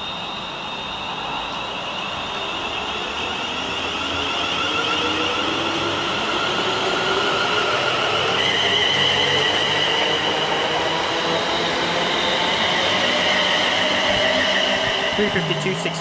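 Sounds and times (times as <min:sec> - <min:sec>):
train rumble: 0:09.2 - 0:16.0.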